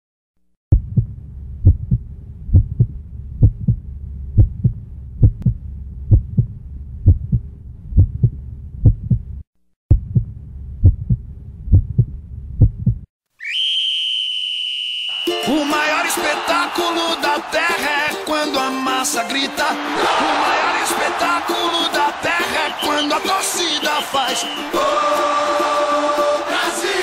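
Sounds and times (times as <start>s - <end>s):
steady low hum: 0.7s - 13.0s
heartbeat thumps: 0.7s - 13.1s.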